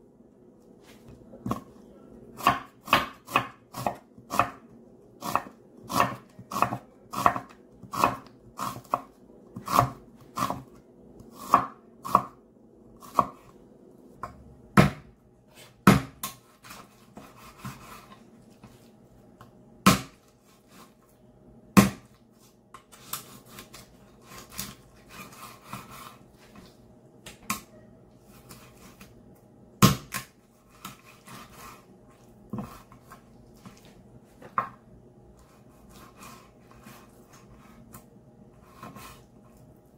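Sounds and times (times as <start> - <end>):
knife chopping on wooden board: 2.4 - 4.6, 5.2 - 10.7, 11.4 - 12.4, 13.1 - 13.4, 14.2 - 15.1, 15.8 - 17.9, 19.8 - 20.2, 21.8 - 22.1, 29.8 - 31.5.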